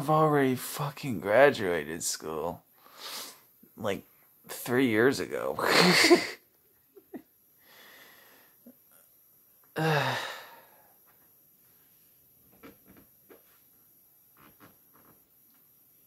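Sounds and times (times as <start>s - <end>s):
man breathing out: 7.6s - 8.6s, 9.8s - 11.0s
voiced sigh: 9.8s - 10.9s.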